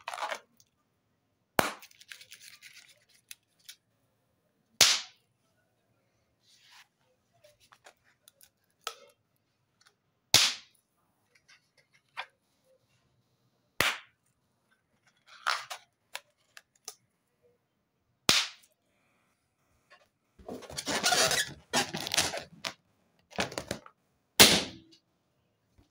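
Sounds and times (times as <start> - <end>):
rubber handling sounds: 0.0 - 0.8, 1.8 - 3.9, 6.4 - 13.4, 14.0 - 17.1, 19.8 - 24.0
balloons popping: 20.4 - 23.8, 24.4 - 24.9.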